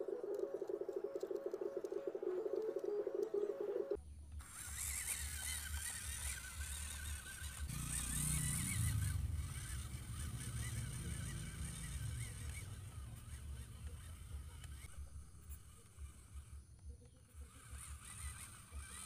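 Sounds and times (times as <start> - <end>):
toy truck electric motor running: 4.3 - 19.0.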